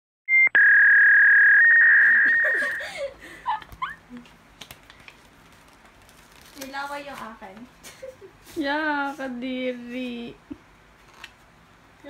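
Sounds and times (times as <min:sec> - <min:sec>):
steady electronic tone: 0:00.4 - 0:02.8.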